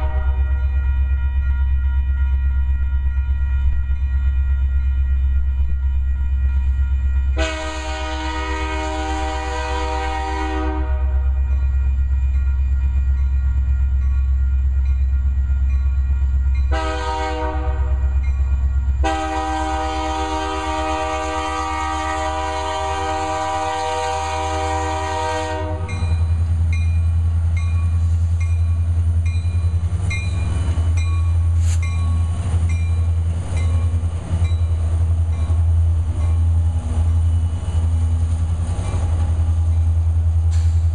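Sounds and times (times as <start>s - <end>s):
locomotive air horn: 0.0s - 11.4s, 16.7s - 18.2s, 19.0s - 26.2s
locomotive engine rumble: 0.0s - 40.9s
train wheels clicking over rail joints: 25.8s - 40.9s.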